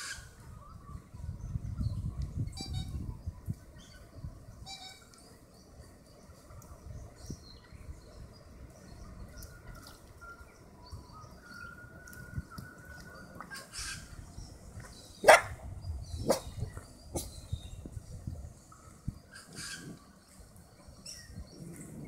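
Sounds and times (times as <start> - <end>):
dog barking: 15.2 - 15.6.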